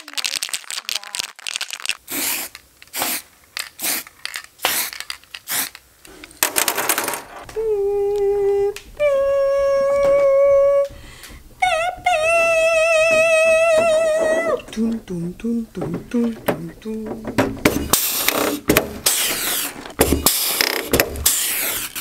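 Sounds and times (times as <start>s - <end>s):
aerosol spray hissing: 2.0s - 5.8s.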